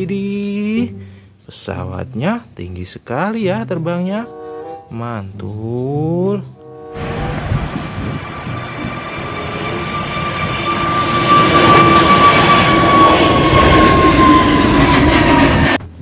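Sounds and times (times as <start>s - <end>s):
jet airliner taking off: 6.6s - 15.8s.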